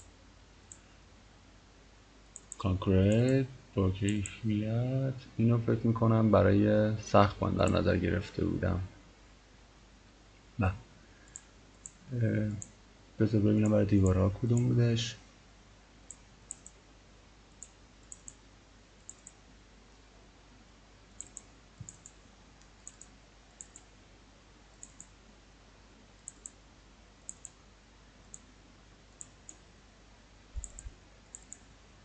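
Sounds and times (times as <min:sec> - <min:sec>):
faint steady hiss: 0:00.0 - 0:32.0
computer mouse clicking: 0:02.3 - 0:03.4, 0:11.2 - 0:12.8, 0:14.5 - 0:14.7, 0:16.1 - 0:16.8, 0:17.5 - 0:18.4, 0:19.0 - 0:19.4, 0:21.2 - 0:23.9, 0:24.7 - 0:25.2, 0:26.2 - 0:26.6, 0:27.2 - 0:27.6, 0:28.2 - 0:28.5, 0:29.1 - 0:29.6, 0:30.6 - 0:31.7.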